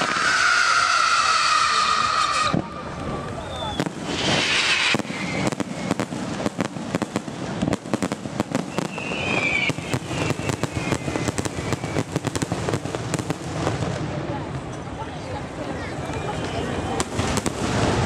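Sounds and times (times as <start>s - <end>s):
firework whistle: 0.0s - 12.6s
fireworks bangs and crackles: 0.0s - 18.0s.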